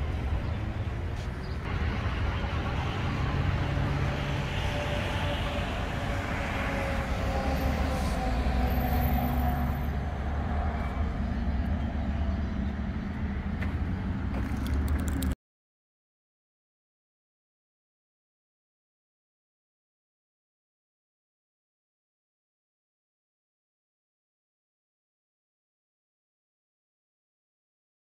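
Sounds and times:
road traffic rushing: 0:00.0 - 0:15.4.

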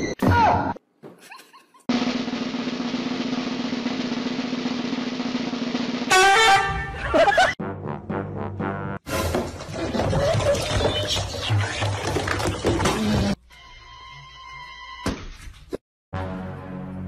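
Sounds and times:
snare drum roll: 0:01.9 - 0:06.5.

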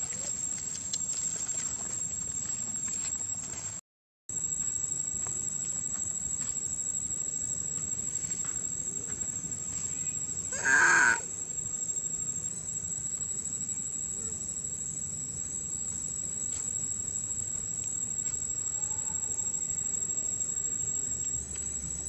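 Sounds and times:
outdoor background hiss: 0:04.4 - 0:22.0
macaque call: 0:10.5 - 0:11.3.

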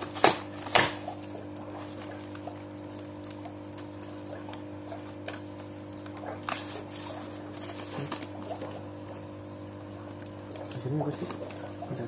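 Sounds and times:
packaging rustling: 0:00.0 - 0:08.7
steady low hum: 0:00.0 - 0:12.0.

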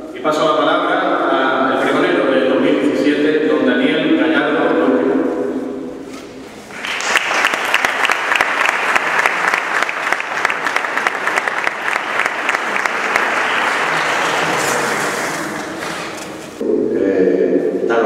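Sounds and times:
audience applauding: 0:06.7 - 0:16.2.

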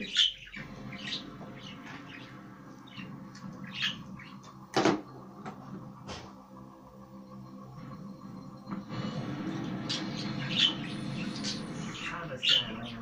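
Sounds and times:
budgerigar chirping: 0:00.0 - 0:04.5, 0:09.9 - 0:13.0.

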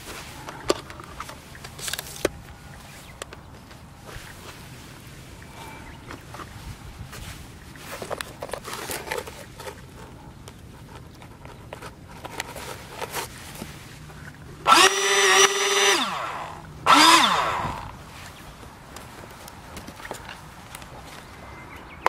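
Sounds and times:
rustles and clicks of handling: 0:00.0 - 0:14.8, 0:16.9 - 0:22.0
electric ducted fans whining: 0:14.4 - 0:19.2.

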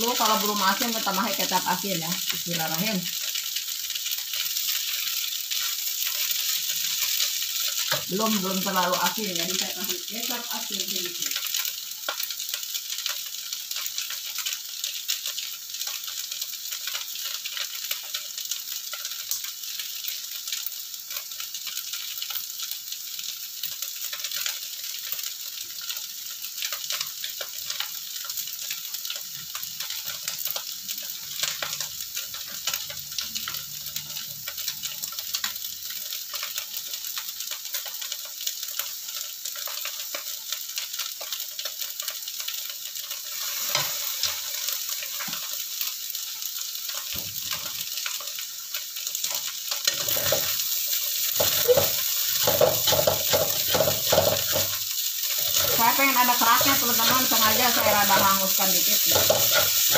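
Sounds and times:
noodles sizzling in a wok: 0:00.0 - 0:59.9
metal spatula clicking and scraping: 0:49.2 - 0:55.8, 0:58.9 - 0:59.9.

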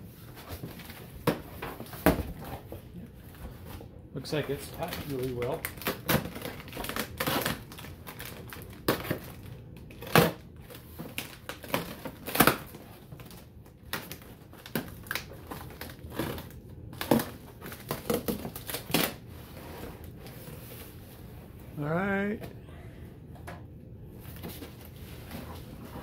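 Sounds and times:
knife cutting packing tape: 0:04.8 - 0:12.8, 0:13.9 - 0:19.2.

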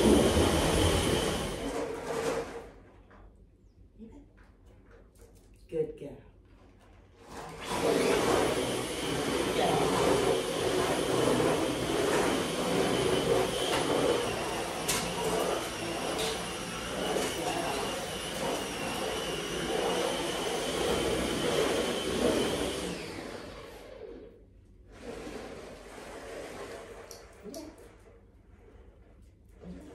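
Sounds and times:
vacuum suction rushing: 0:00.0 - 0:01.7
vacuum cleaner whining: 0:00.0 - 0:02.8, 0:07.2 - 0:27.6.

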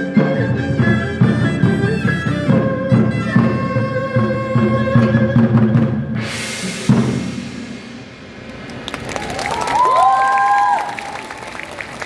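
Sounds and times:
drum strokes: 0:00.0 - 0:08.8
traditional ensemble playing: 0:00.0 - 0:09.2
applause and cheering: 0:08.5 - 0:12.0.

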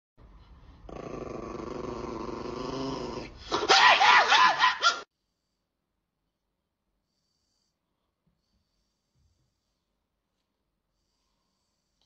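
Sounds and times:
dog growling: 0:00.8 - 0:03.6
dog snarling and screaming: 0:00.9 - 0:05.1.

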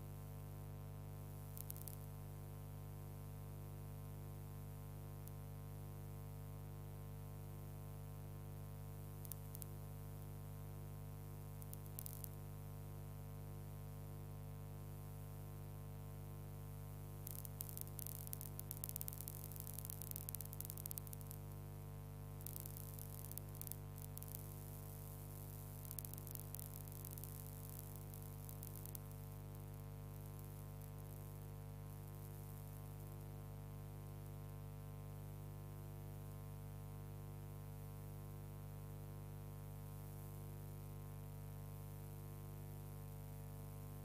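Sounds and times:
crackling static: 0:00.0 - 0:44.0
electrical hum: 0:16.6 - 0:33.5.

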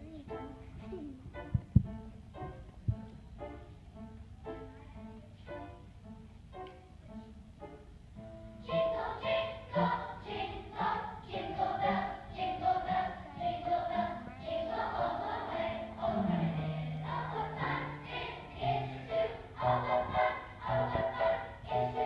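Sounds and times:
children's choir singing: 0:08.6 - 0:22.0.

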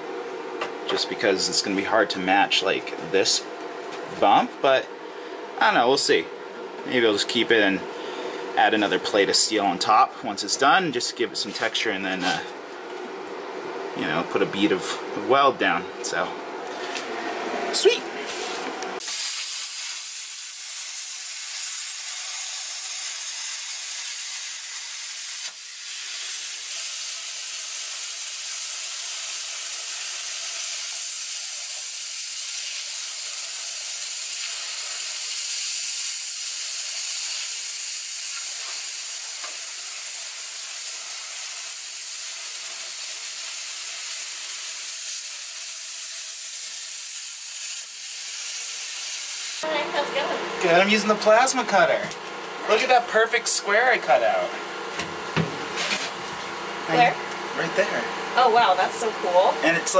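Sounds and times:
plasma cutter hissing: 0:19.0 - 0:49.7.

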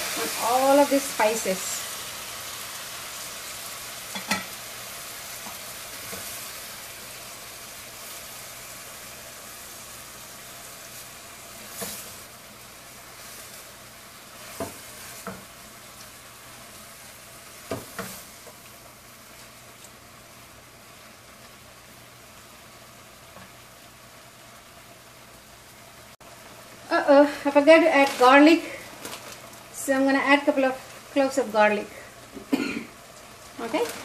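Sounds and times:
food sizzling in a pot: 0:00.0 - 0:34.0.

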